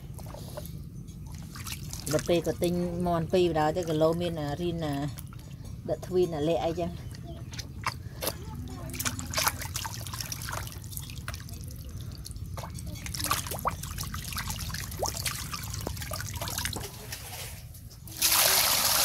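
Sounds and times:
water dripping and trickling: 0.1 - 17.3
water being poured: 9.0 - 17.5.

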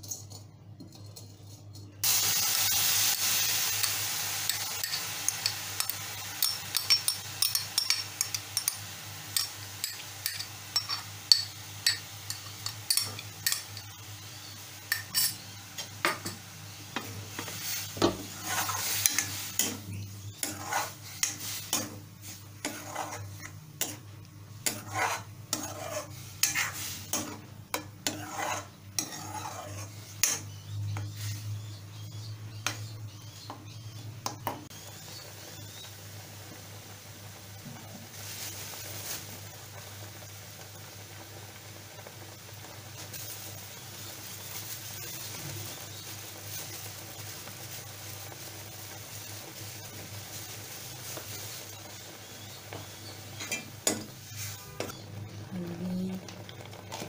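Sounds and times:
puree sizzling in hot pan: 2.0 - 57.0
spoon scraping and clinking pan: 3.8 - 14.0, 14.9 - 16.4, 17.0 - 22.0, 22.6 - 24.0, 24.6 - 30.6.

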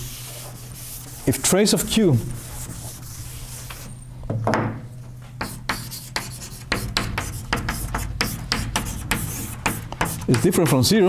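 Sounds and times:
scratchy writing strokes on board: 2.4 - 3.9, 5.4 - 10.9.

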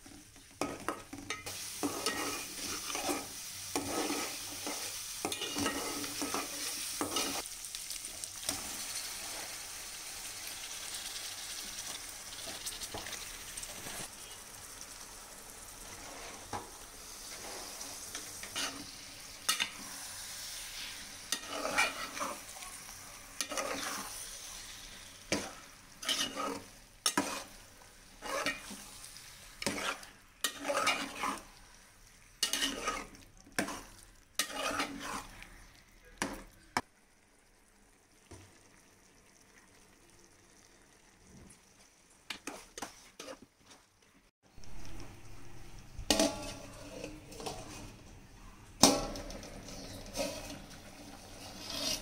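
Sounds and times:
meat sizzling in hot oil: 0.0 - 43.2
stirring scrapes in a metal pot: 0.1 - 7.5, 15.8 - 35.6, 42.3 - 43.8, 46.0 - 48.2, 48.8 - 52.0.

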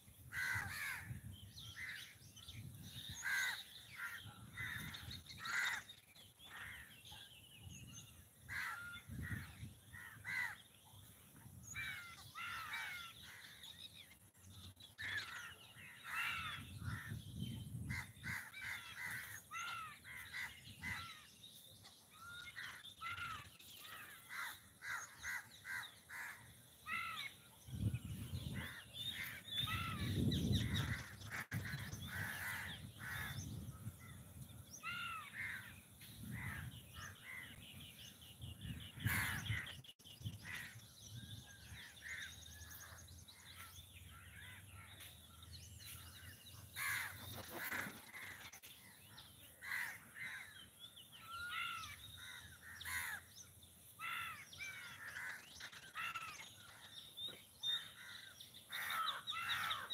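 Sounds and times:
birds calling: 0.0 - 59.9
crows cawing: 0.3 - 1.2, 3.2 - 5.9, 8.5 - 9.4, 10.0 - 10.6, 11.8 - 13.6, 22.5 - 27.4, 46.8 - 48.3, 49.6 - 50.6, 51.3 - 53.3, 54.0 - 56.4, 57.6 - 59.9.

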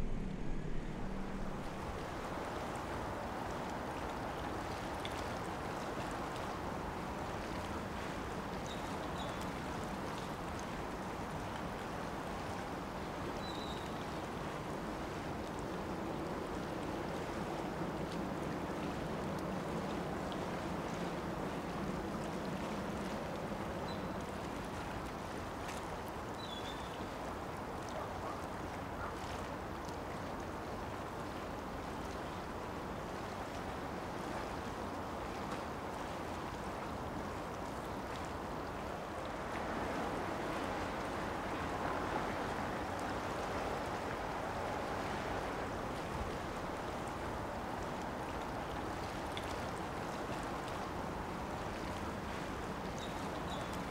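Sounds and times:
low hum: 0.0 - 3.0
wind: 0.0 - 53.9.

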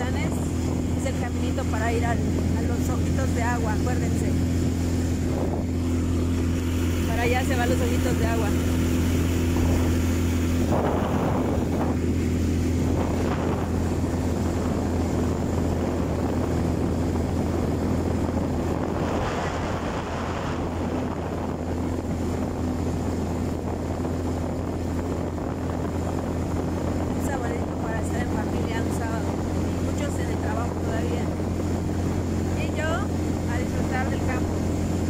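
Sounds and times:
quad bike engine humming: 0.0 - 35.0
wind gusts on microphone: 0.0 - 35.0.

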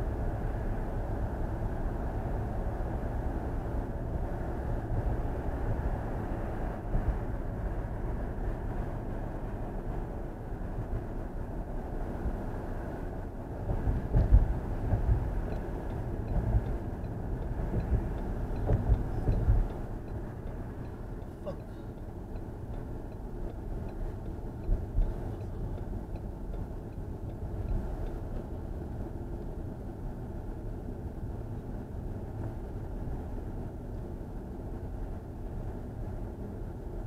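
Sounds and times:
car road and tyre rumble: 0.0 - 37.0
faint regular ticking: 14.9 - 28.4.

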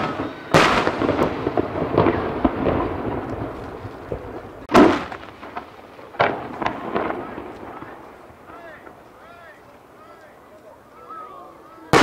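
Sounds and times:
firework boom: 0.0 - 8.2
firework shells bursting: 0.0 - 9.3
firework crackling: 0.0 - 12.0.

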